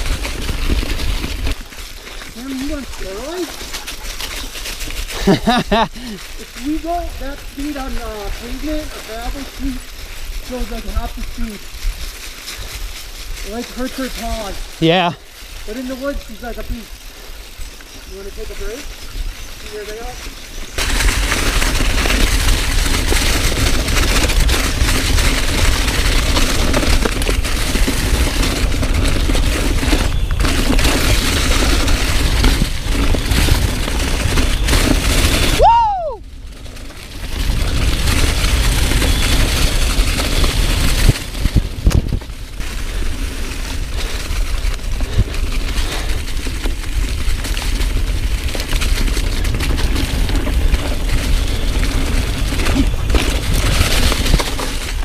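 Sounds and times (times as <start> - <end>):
bike tyres and frame rattling: 0.0 - 55.0
wind buffeting microphone: 18.1 - 55.0.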